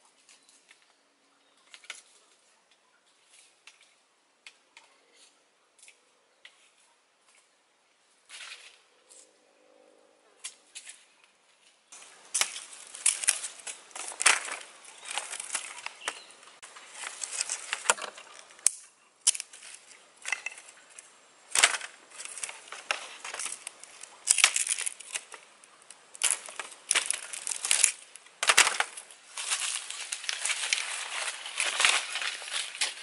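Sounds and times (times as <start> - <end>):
bamboo cracking: 11.9 - 33.0
bamboo tearing and rasping: 12.0 - 33.0.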